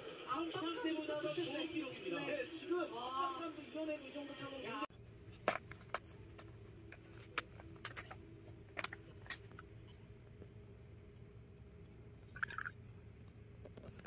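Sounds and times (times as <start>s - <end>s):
faint low hum: 4.9s - 14.0s.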